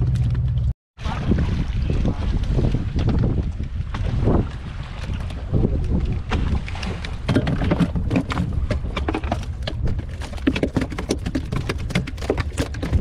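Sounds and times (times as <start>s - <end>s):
steady low rumble: 0.0s - 7.2s.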